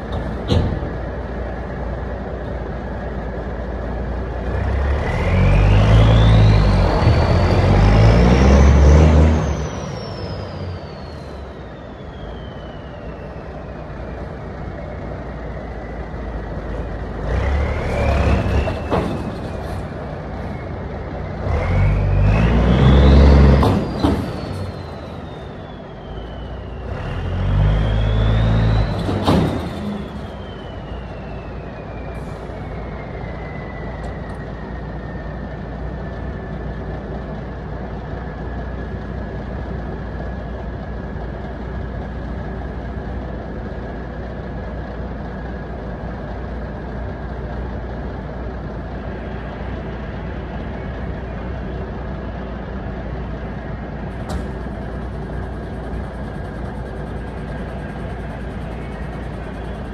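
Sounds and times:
diesel engine revving: 0.0s - 59.9s
turbocharger whistle: 5.0s - 19.4s, 20.2s - 35.7s, 53.5s - 59.9s.

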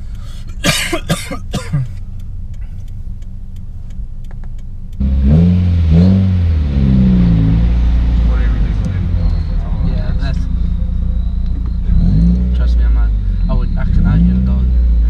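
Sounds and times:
car engine revving: 0.0s - 15.0s
person's voice: 12.6s - 14.8s.

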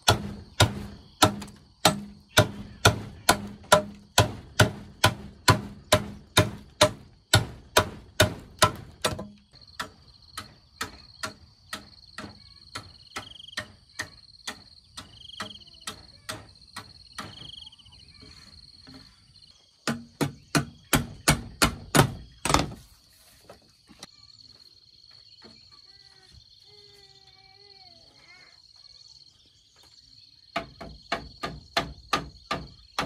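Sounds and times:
hand tool striking: 0.0s - 17.4s
high insect drone: 9.3s - 33.0s.

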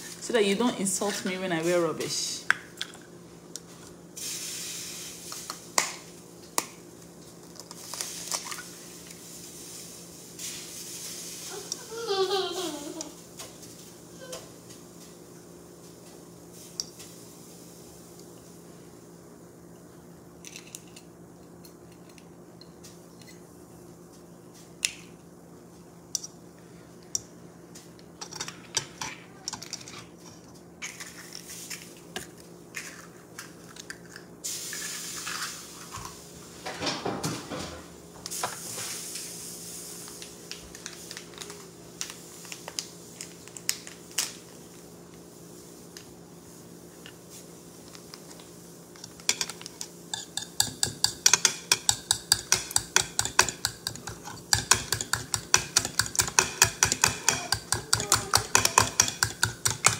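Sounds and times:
steady low hum: 41.5s - 59.9s
spoon and dishes clinking: 49.3s - 59.9s.

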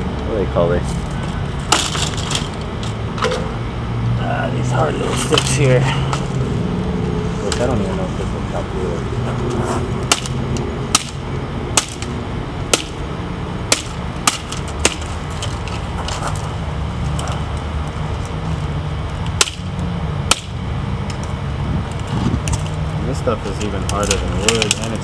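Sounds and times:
knife chopping stalks on wood: 10.1s - 11.2s, 11.8s - 12.1s, 12.7s - 13.0s, 13.7s - 15.1s, 19.4s - 19.6s, 20.3s - 20.5s.

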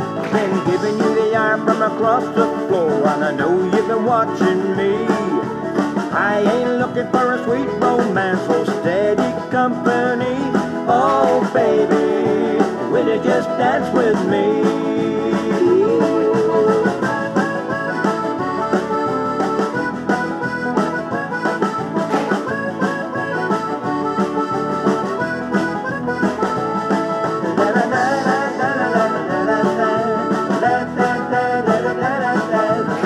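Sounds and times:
upbeat country dance music: 0.0s - 33.0s.

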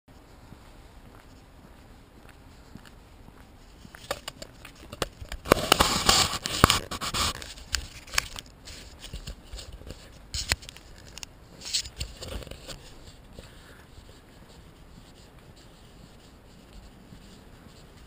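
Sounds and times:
footsteps walking: 0.1s - 18.0s
camera handling scraping and rustling: 3.8s - 13.8s.

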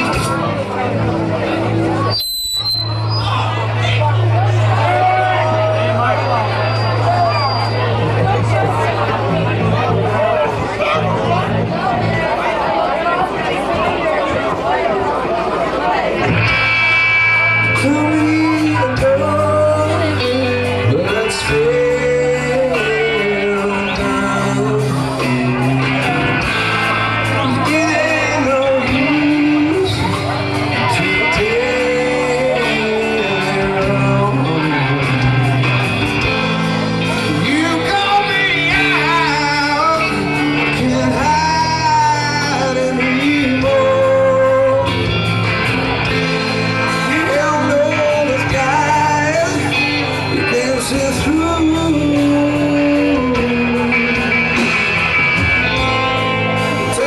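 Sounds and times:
live rock band playing: 0.0s - 57.0s
man singing: 17.5s - 57.0s.

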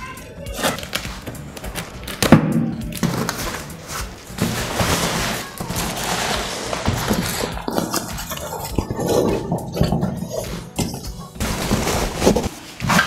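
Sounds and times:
cardboard crackling and ripping: 2.9s - 8.6s, 11.2s - 13.0s.

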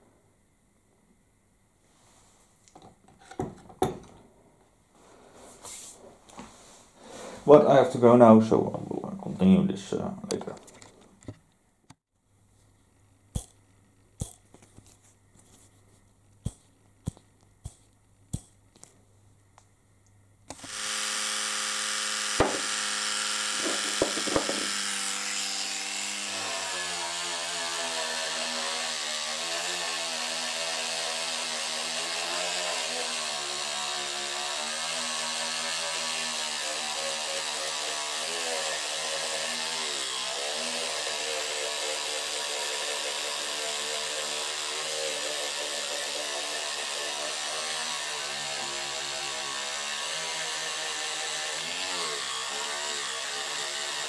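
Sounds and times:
electric toothbrush buzzing: 20.5s - 54.0s
sharp knocks: 22.4s - 22.8s, 23.6s - 24.8s.

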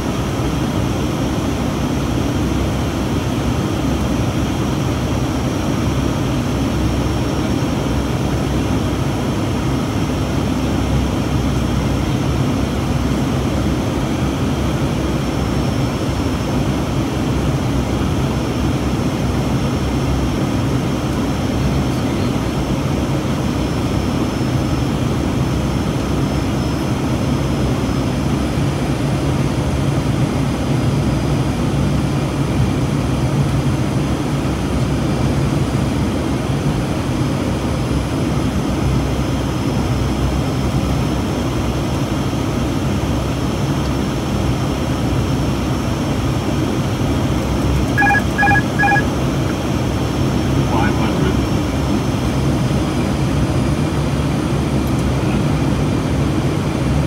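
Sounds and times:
aircraft engine drone: 0.0s - 57.0s
cabin airflow noise: 43.6s - 56.8s
faint high whine: 47.4s - 49.6s.

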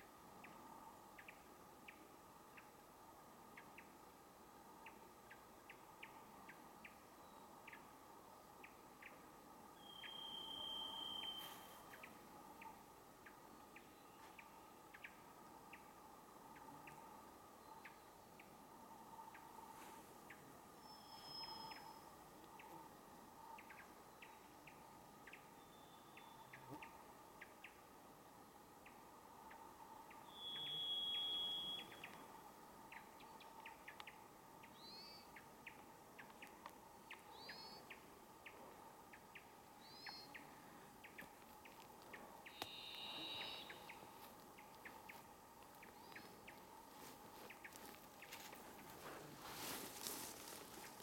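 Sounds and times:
thrush whistled notes: 9.8s - 11.8s.

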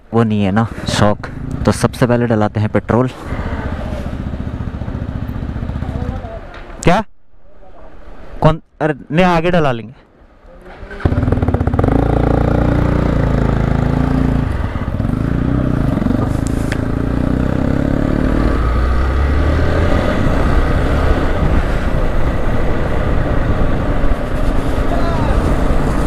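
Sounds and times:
motorcycle engine pulling away: 3.4s - 6.4s, 10.7s - 26.0s.

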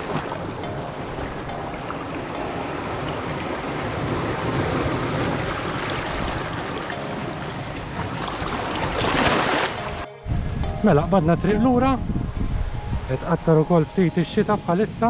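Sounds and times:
sea surf: 0.0s - 10.1s
wind buffeting microphone: 0.0s - 15.0s.

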